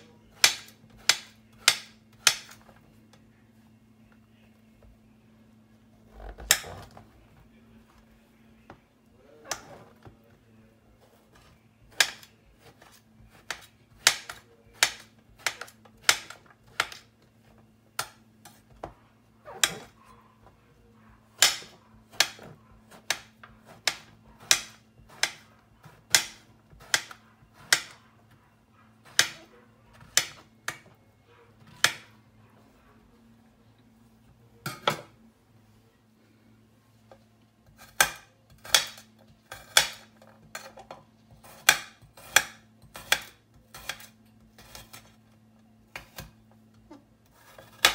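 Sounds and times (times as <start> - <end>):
knife chopping on glass board: 0.3 - 2.6, 11.4 - 17.1, 21.4 - 28.0, 29.0 - 30.9, 31.7 - 32.2, 37.8 - 40.7, 41.4 - 45.1.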